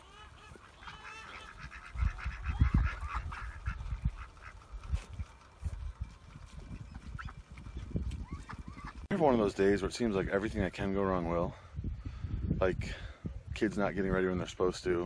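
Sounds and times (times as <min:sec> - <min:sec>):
ducks quacking: 0:00.0 - 0:05.2, 0:08.2 - 0:09.1.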